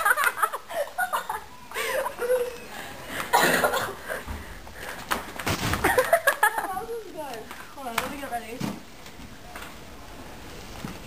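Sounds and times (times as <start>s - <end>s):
girls laughing and giggling: 0.0s - 4.4s, 5.7s - 7.2s.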